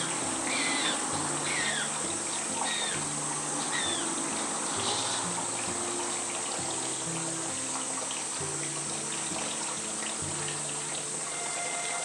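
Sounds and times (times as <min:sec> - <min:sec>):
soft background music: 0:00.0 - 0:12.0.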